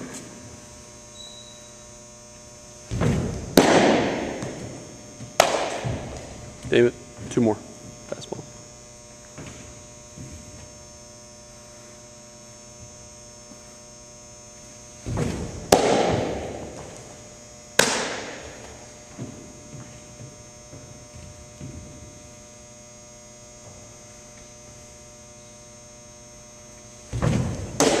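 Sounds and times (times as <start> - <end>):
electrical hum: 0.0 - 28.0
baseball popping into mitt: 2.9 - 6.3, 15.1 - 17.0, 17.8 - 19.3.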